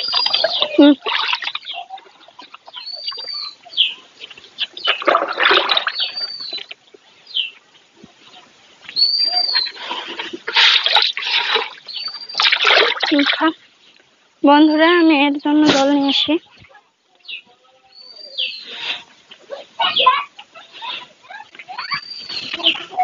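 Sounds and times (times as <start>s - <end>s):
water splashing in trough: 0.0s - 3.5s, 4.8s - 6.8s, 9.6s - 13.6s
bird whistled call: 5.9s - 6.7s, 9.0s - 9.8s, 17.9s - 18.8s, 21.8s - 22.8s.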